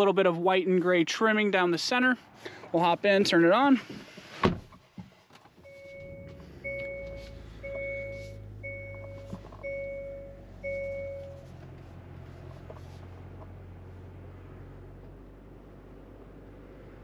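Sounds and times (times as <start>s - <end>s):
car engine idling: 5.4s - 17.0s
dashboard warning chime: 5.6s - 11.5s.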